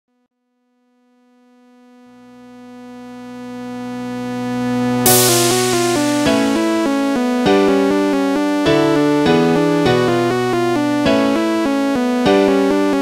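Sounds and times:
cymbal crash: 5.1s - 7.8s
synth melody of short notes: 5.1s - 7.8s
sustained synthesizer chord: 5.1s - 8.3s.

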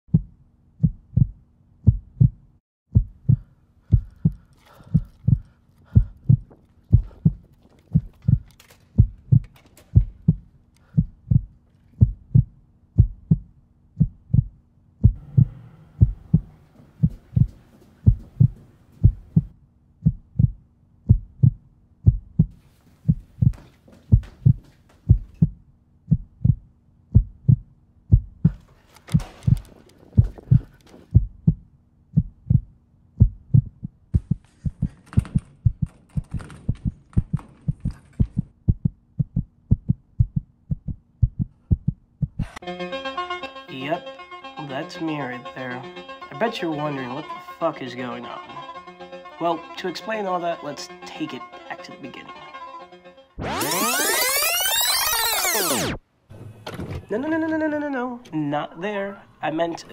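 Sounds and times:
heartbeat thumps: 0.1s - 42.6s
faint low hum: 14.2s - 19.5s.

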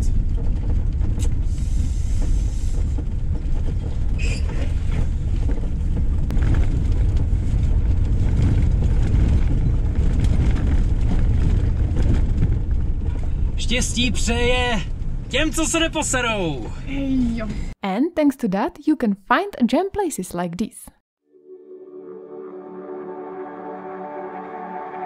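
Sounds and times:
van driving on rough track: 0.0s - 17.8s.

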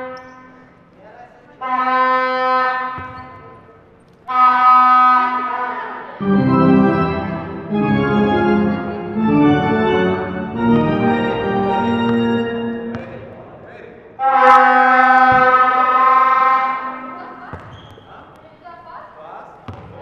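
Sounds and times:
organ keyboard music: 6.2s - 13.6s.

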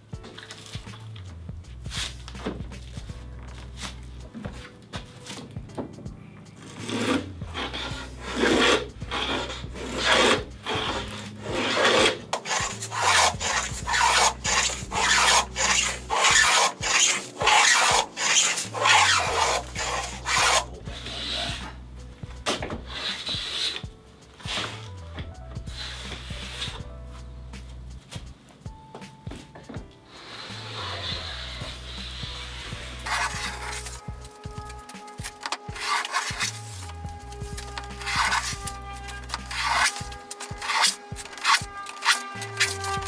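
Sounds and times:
hand plane scraping wood: 6.6s - 27.9s, 30.1s - 43.0s.

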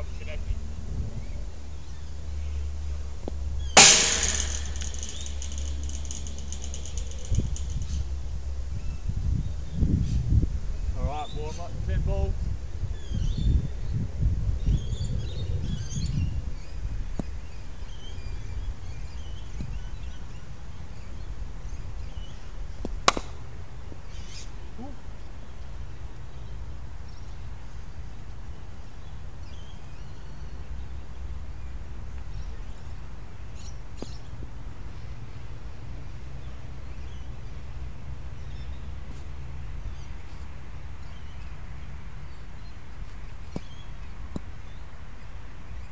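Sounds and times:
birds chirping: 0.0s - 8.2s
steady low rumble: 0.0s - 11.0s
sharp click: 3.8s - 8.0s.

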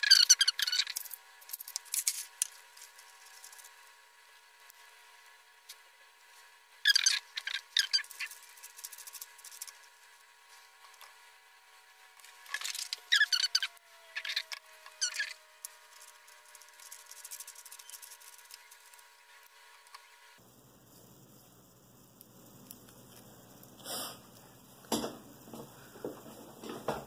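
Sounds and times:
small parts clicking and rubbing: 0.0s - 3.9s, 6.8s - 10.0s, 12.2s - 20.1s.

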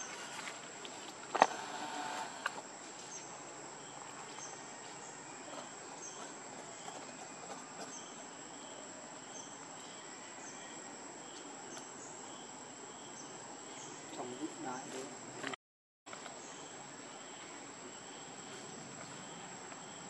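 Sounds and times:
faint insect chirps: 0.0s - 20.0s
high-pitched insect drone: 1.3s - 2.6s.

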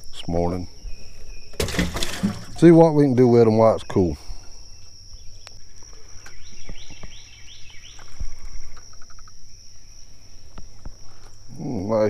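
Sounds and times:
bird singing repeated notes: 2.5s - 8.8s
high-pitched insect drone: 2.6s - 12.0s.

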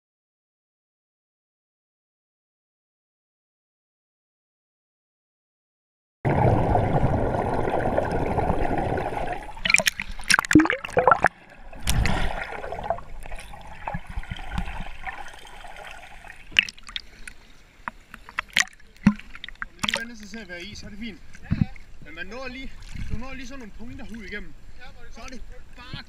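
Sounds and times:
underwater water rushing: 6.3s - 17.4s, 18.1s - 20.4s
water bubbling and gurgling: 6.3s - 20.2s
water splashes: 6.3s - 24.5s.

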